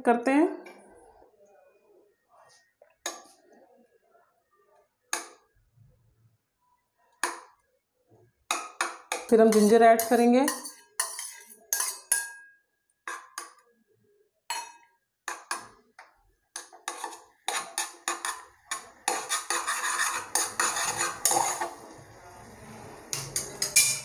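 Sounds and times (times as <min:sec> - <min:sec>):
metal spoon scraping a pot: 0:08.5 - 0:12.4, 0:16.6 - 0:24.0.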